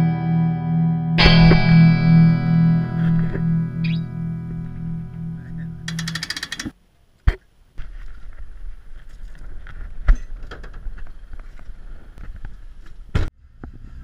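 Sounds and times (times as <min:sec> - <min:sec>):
short loud knock: 0:01.2 - 0:03.6
irregular clicks: 0:05.9 - 0:06.8.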